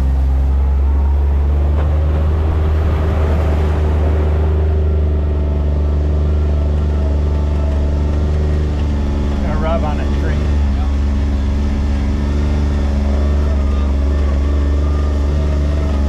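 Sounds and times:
engine running steady drone: 0.0s - 16.0s.

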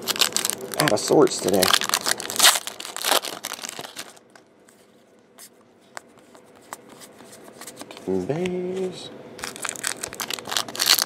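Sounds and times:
foil wrapper crinkling and tearing: 0.0s - 4.4s, 9.4s - 11.0s.

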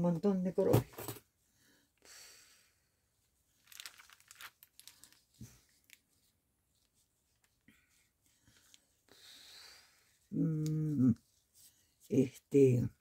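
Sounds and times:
ribbon rustling and crinkling: 3.4s - 9.1s.

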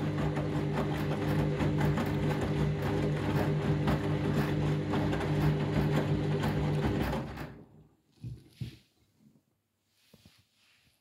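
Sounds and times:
washing machine motor hum: 0.0s - 8.0s.

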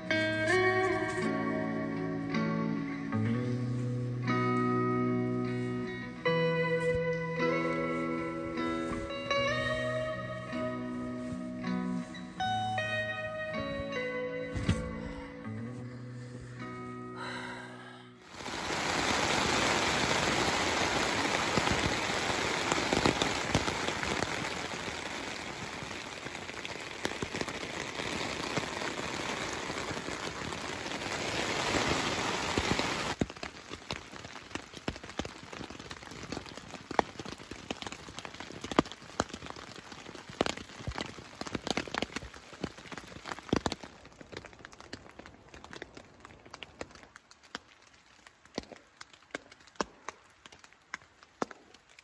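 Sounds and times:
pouring rain: 0.0s - 14.3s, 17.2s - 52.0s
raindrops tapping: 18.2s - 52.0s.

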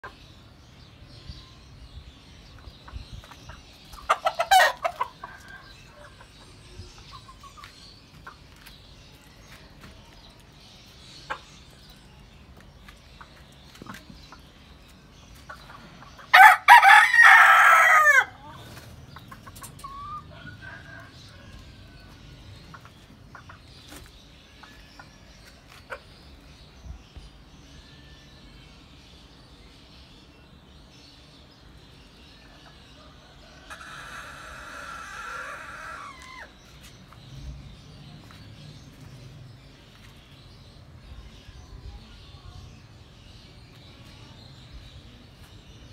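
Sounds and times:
rooster crowing: 16.3s - 18.4s.

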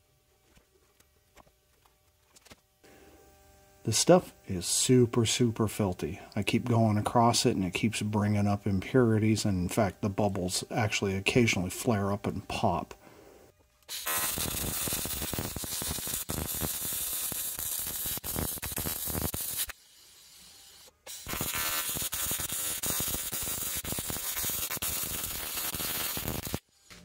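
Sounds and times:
welding pops: 13.8s - 19.8s, 21.0s - 27.0s
welding arc buzzing: 13.8s - 27.0s.

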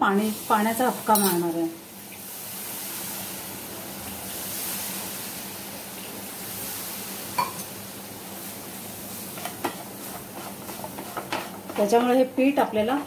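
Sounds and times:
stuffing sizzling in a frying pan: 0.0s - 13.0s.

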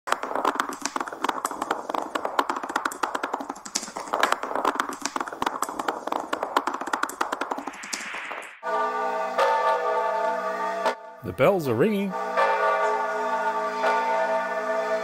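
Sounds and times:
rapid uneven tapping: 0.1s - 8.6s.

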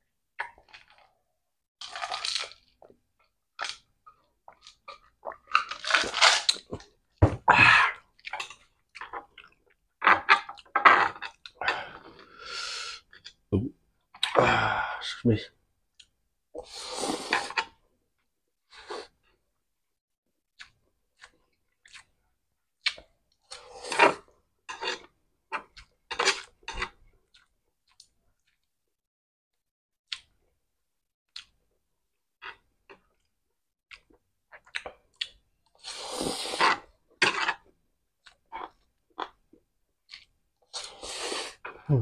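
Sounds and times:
chewing noodles: 20.5s - 22.2s.

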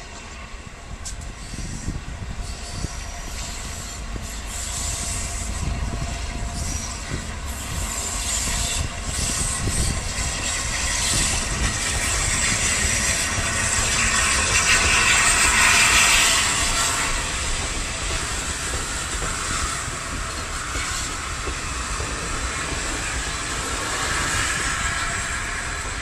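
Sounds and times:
hiss of steam: 0.0s - 26.0s
steam train passing: 0.0s - 26.0s.

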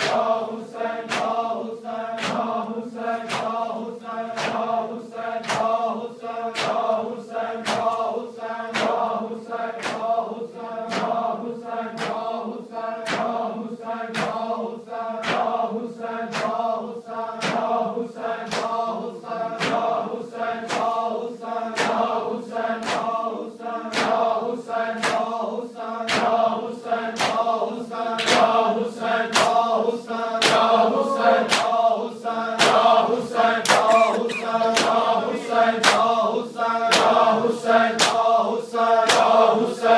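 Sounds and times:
men chanting together: 0.0s - 39.9s
hands slapping chests: 33.6s - 35.0s.

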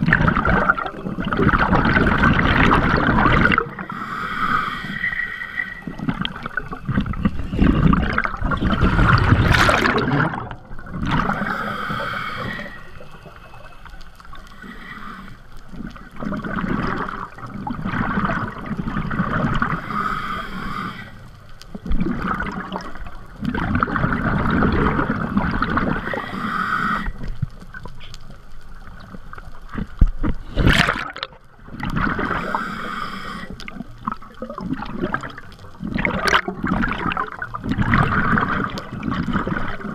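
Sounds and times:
exhaled bubbles gurgling: 0.0s - 28.1s, 28.7s - 39.9s
diver inhaling through regulator: 3.8s - 6.1s, 11.2s - 15.6s, 19.8s - 21.3s, 26.0s - 27.4s, 32.3s - 33.8s.

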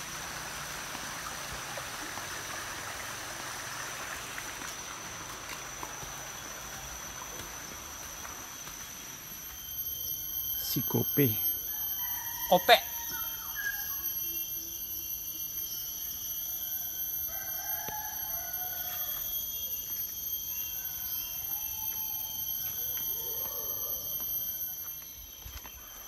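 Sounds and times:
high-pitched insect drone: 0.0s - 26.0s
distant rooster crowing: 9.9s - 25.8s.

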